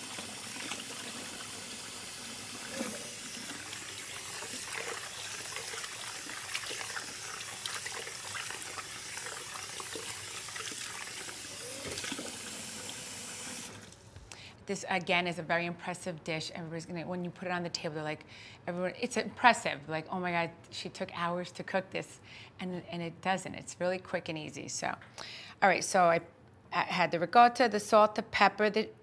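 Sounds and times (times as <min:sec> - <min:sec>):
water spraying from faucet: 0:00.0 - 0:13.9
water splashing: 0:02.5 - 0:13.0.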